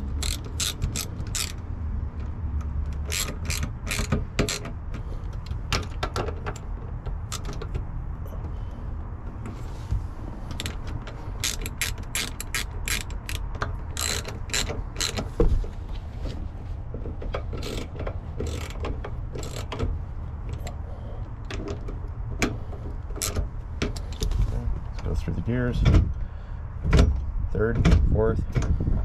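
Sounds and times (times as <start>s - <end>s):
ratchet wrench clicking: 0.0s - 1.6s, 2.6s - 4.8s, 10.5s - 15.3s, 17.6s - 19.8s, 23.2s - 24.2s.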